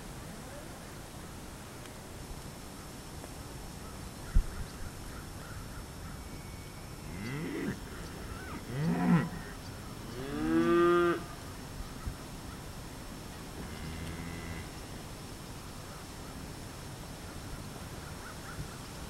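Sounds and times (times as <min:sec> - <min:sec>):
cattle mooing: 0:07.1 - 0:11.4, 0:13.6 - 0:14.7.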